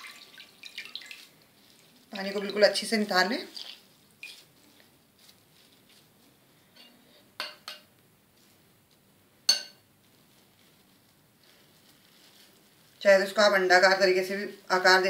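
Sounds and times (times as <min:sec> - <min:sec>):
dishware clinking: 0:09.5 - 0:09.8.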